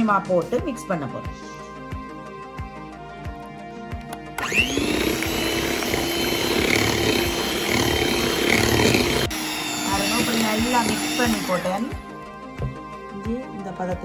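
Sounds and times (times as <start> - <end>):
electric mixer running: 4.4 - 12.1.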